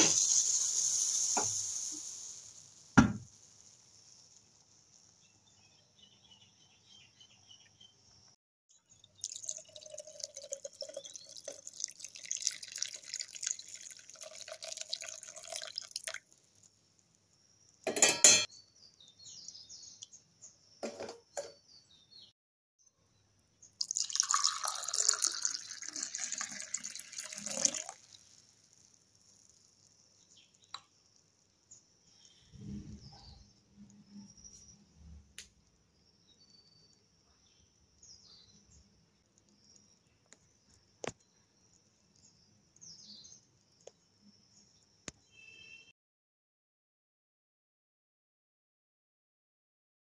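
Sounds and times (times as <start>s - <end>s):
tea pouring into glass cup: 8.9s - 16.7s, 23.8s - 30.8s
tea pouring into plastic jug: 8.9s - 16.7s, 23.7s - 30.8s.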